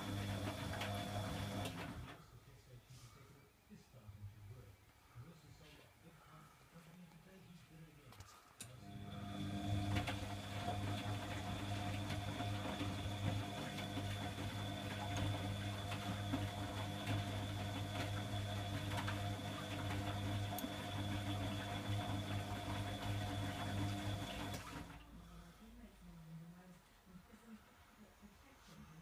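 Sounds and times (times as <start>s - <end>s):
washing machine drum humming: 0.0s - 2.1s, 8.9s - 25.0s.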